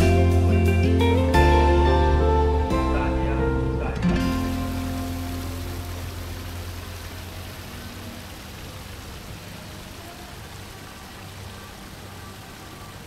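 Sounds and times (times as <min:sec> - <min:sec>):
background music: 0:00.0 - 0:07.0
fountain splashing into basin: 0:04.2 - 0:13.0.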